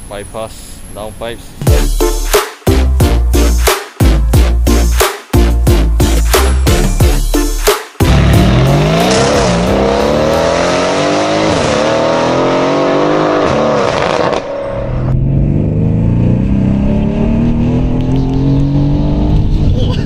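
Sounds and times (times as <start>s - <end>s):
car exhaust accelerating hard: 8.0s - 20.0s.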